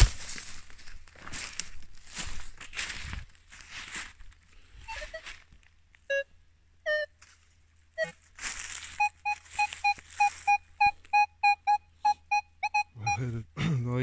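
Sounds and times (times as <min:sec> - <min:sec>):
rustle: 0:00.0 - 0:06.1, 0:07.2 - 0:10.6
metal detector beeps: 0:04.8 - 0:05.4, 0:06.9 - 0:07.1, 0:08.0 - 0:08.2, 0:08.9 - 0:13.3.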